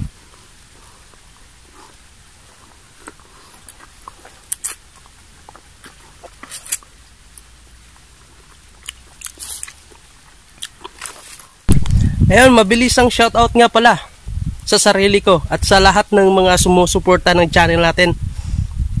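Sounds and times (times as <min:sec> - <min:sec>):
person chewing and sucking fruit: 0:00.0 - 0:12.2.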